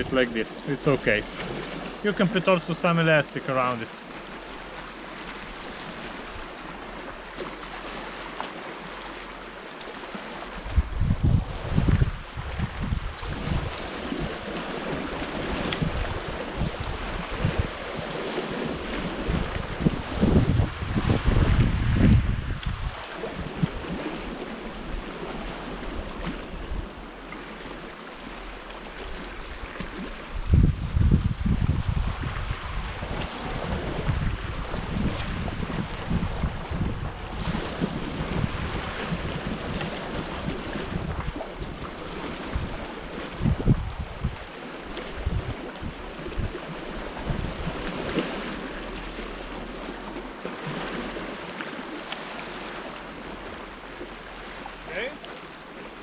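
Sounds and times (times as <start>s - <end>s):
waves washing on rocks: 0.0s - 31.1s, 32.2s - 56.0s
wind buffeting microphone: 10.0s - 54.8s.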